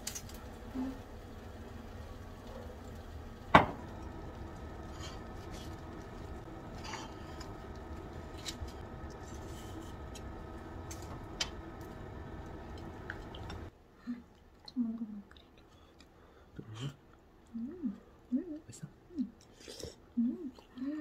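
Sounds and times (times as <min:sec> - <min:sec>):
kitchen hum: 0:00.0 - 0:13.7.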